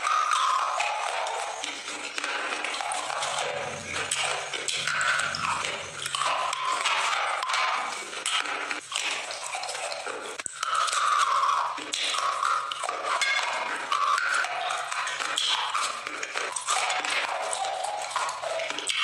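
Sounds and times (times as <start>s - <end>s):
crunching and chewing: 17.5s - 18.8s.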